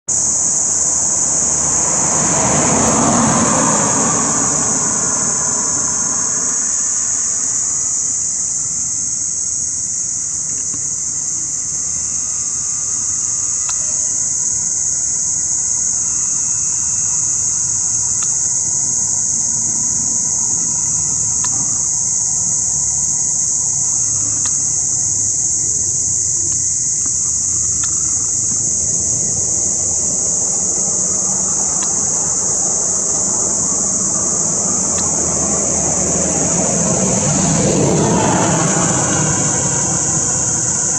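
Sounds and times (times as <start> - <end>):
insect chorus chirring: 0.0 - 40.9
car engine and tyre noise: 0.1 - 40.9
faint low rumble: 27.6 - 40.9.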